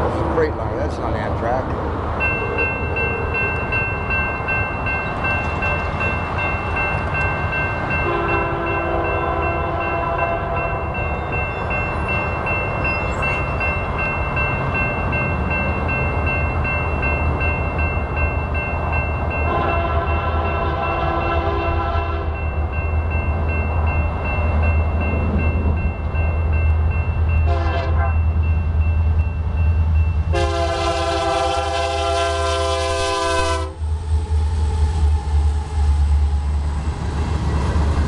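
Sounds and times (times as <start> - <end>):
level crossing warning bell: 2.2 - 33.6
train air horn blasts: 8.0 - 10.7, 19.5 - 22.4, 27.4 - 28.2, 30.3 - 33.8.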